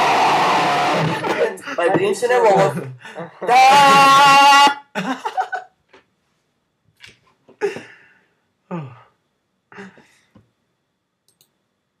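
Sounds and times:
man gasping and sighing: 7.6s - 10.3s.

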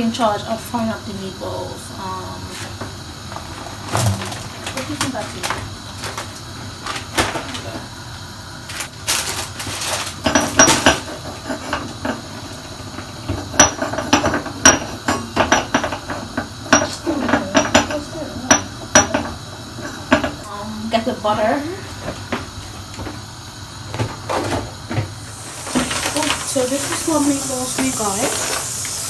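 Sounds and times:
pots and utensils clattering: 3.5s - 7.7s, 9.1s - 20.4s, 24.0s - 29.0s.

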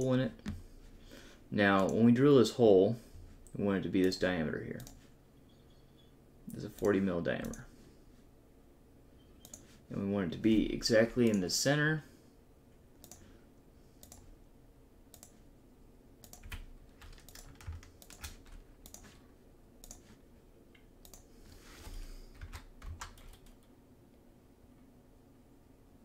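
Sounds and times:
keyboard and mouse clicking: 9.4s - 9.7s, 13.0s - 13.3s, 14.0s - 14.3s, 15.1s - 15.4s, 16.2s - 19.2s, 19.8s - 20.1s, 20.8s - 21.2s.

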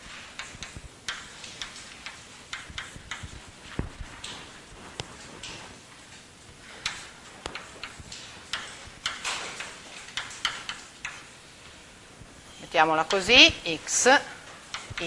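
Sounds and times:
chalk writing on blackboard: 0.4s - 3.8s.

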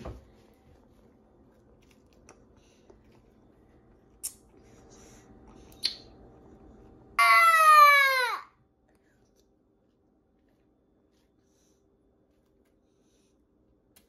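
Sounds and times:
sharp lip smacks: 5.7s - 6.1s.

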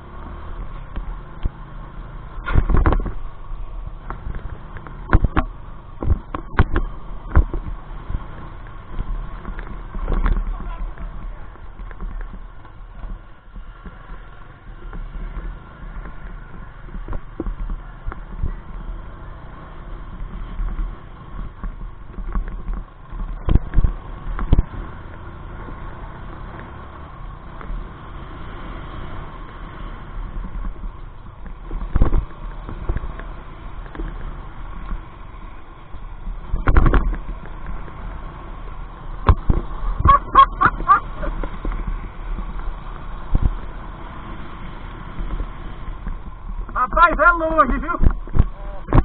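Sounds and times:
knocks and rattles over cobblestones: 0.0s - 49.0s
motorcycle engine: 0.0s - 49.0s
wind noise: 2.4s - 18.8s, 30.2s - 35.0s, 36.1s - 38.3s, 39.1s - 49.0s.

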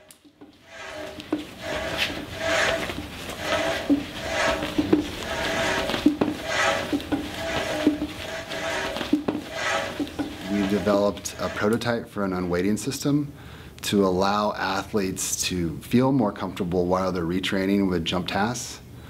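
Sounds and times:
shoes squeaking on floor: 0.0s - 11.8s.

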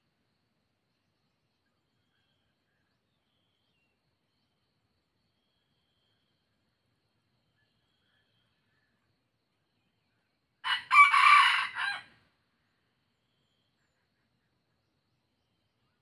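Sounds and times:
rooster crowing: 10.6s - 12.2s.

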